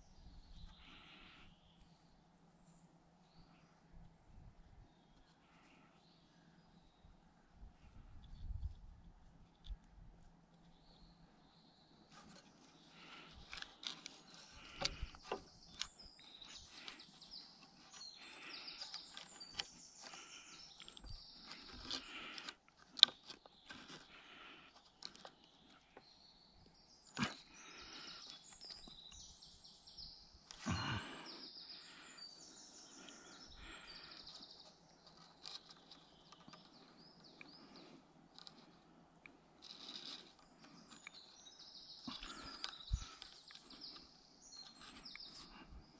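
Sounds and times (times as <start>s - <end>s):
small birds singing: 0.0s - 45.9s
cord rustling and creaking: 12.1s - 26.1s, 32.8s - 41.4s, 42.0s - 45.9s.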